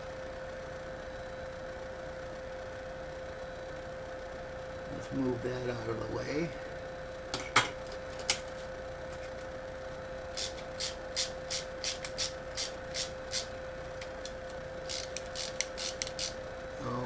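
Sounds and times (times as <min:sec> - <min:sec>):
faint hum: 0:00.0 - 0:17.0
screw scraping clicks: 0:14.2 - 0:16.4.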